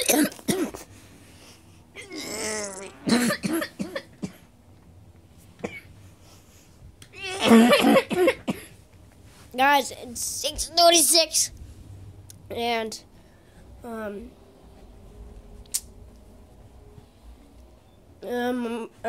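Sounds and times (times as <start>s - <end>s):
person clearing throat: 0.0s - 0.8s, 2.0s - 4.4s, 7.3s - 8.7s
person coughing: 0.0s - 0.9s, 3.1s - 4.4s, 7.3s - 8.8s.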